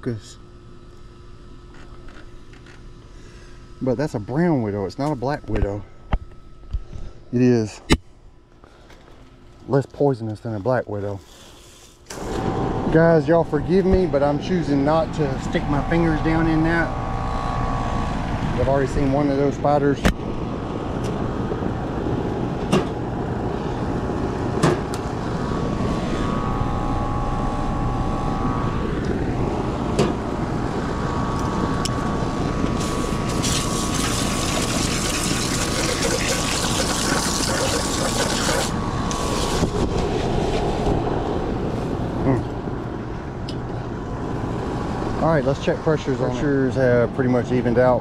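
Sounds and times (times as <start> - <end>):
low mechanical hum: 0.0 - 48.0
hose nozzle spraying water: 32.8 - 39.7.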